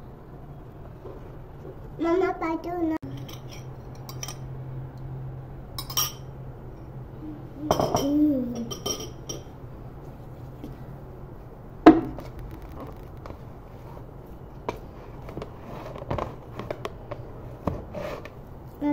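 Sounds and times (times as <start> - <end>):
metal spoon clinking in ceramic bowl: 5.8 - 6.3, 7.7 - 9.5.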